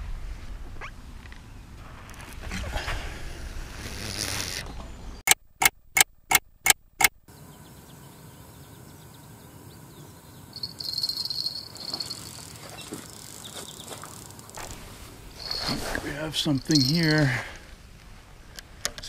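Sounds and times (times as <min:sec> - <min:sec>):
sharp clicks: 0:05.3 - 0:07.2
high-pitched insect buzz: 0:10.6 - 0:14.6.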